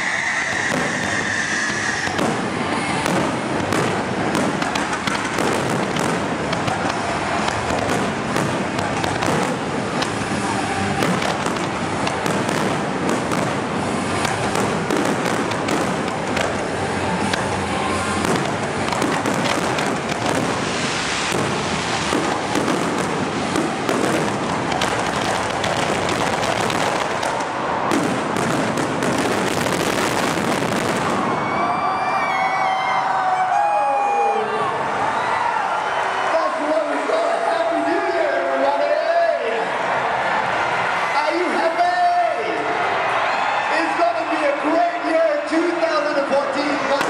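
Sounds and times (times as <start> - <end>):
fireworks bangs and crackles: 0.0 - 32.0, 43.9 - 47.0.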